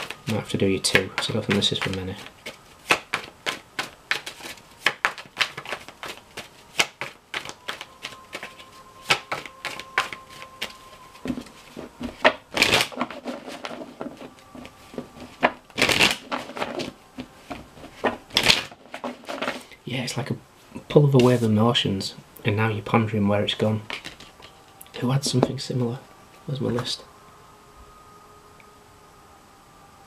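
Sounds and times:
cards being shuffled: 0.0 - 19.7, 23.9 - 24.6
card swishes: 1.5 - 16.9.

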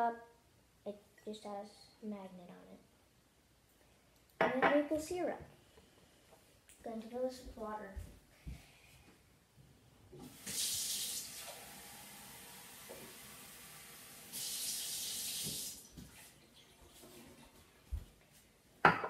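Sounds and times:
tap water running into glass: 10.2 - 16.2.

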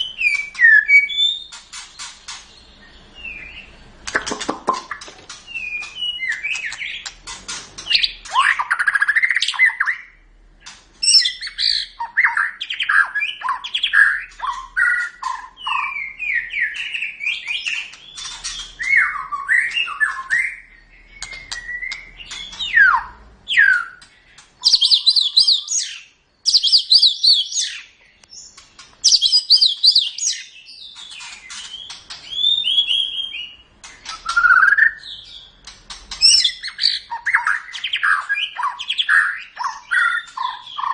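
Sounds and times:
bird singing whistled phrases: 0.0 - 1.6, 5.5 - 7.1, 11.0 - 31.0, 31.6 - 35.4, 36.2 - 40.9.

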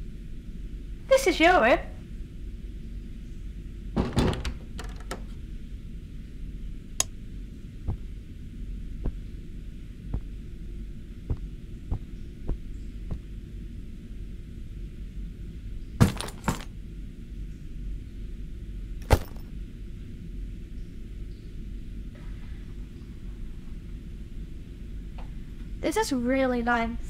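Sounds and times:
steady low hum: 0.0 - 27.0
door opening with clicks: 4.0 - 5.4.

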